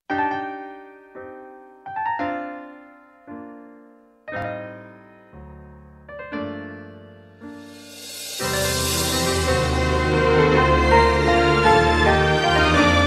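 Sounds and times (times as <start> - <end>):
piano chords: 0.1 - 13.0.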